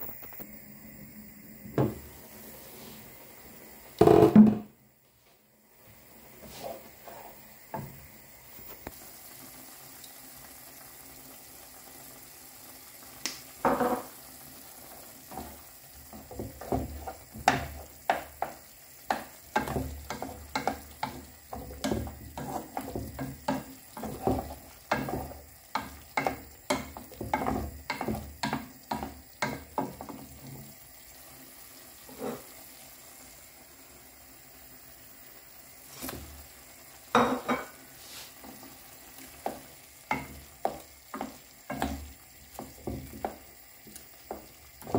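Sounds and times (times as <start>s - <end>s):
food sizzling: 0.0s - 4.8s, 5.5s - 44.9s
spatula scraping frying pan: 15.3s - 30.2s, 32.0s - 32.6s.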